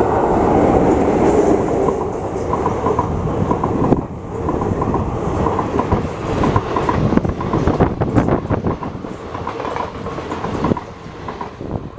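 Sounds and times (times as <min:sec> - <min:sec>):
train wheels rushing on rails: 0:00.0 - 0:11.9
clickety-clack over rail joints: 0:01.7 - 0:11.9.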